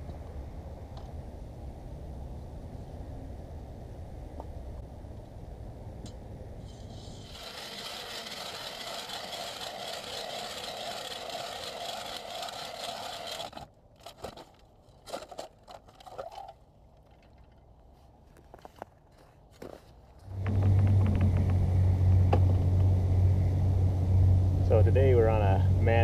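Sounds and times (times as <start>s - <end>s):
ice auger grinding through ice: 6.7s - 16.5s.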